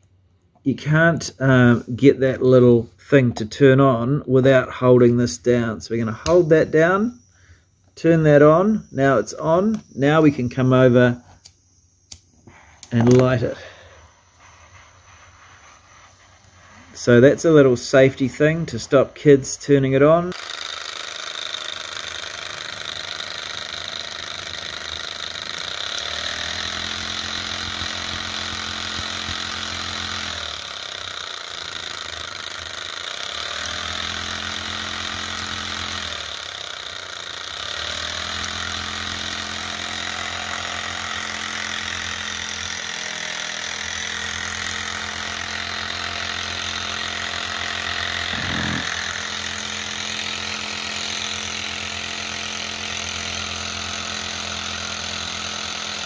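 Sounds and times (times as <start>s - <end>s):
gas burner hissing: 9.3s - 20.4s, 46.6s - 49.9s
stirling engine mechanical whirr: 24.7s - 55.2s.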